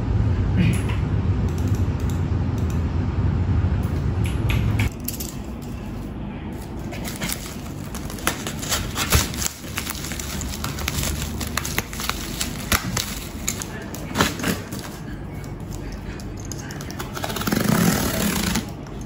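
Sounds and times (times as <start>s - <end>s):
low hum: 0.0s - 19.0s
bubble wrap crinkling: 6.6s - 15.6s.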